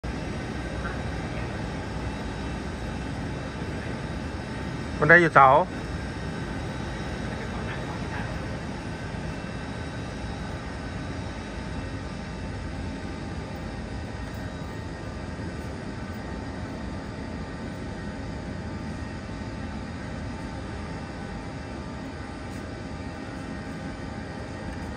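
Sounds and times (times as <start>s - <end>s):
faint steady whine: 0.0s - 24.9s.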